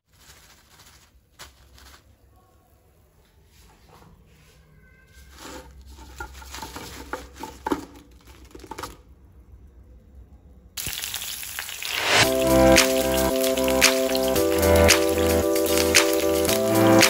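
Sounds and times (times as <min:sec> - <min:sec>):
crisp pieces clattering: 0:00.0 - 0:02.1, 0:05.3 - 0:09.1
paper crinkling: 0:00.0 - 0:02.6, 0:05.1 - 0:09.0
steady hiss: 0:10.8 - 0:17.0.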